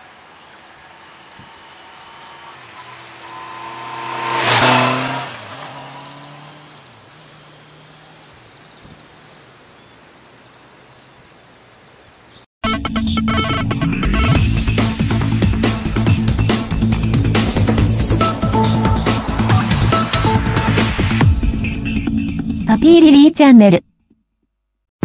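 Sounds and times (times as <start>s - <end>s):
motorcycle passing by: 0.3s - 9.3s, 15.8s - 21.2s.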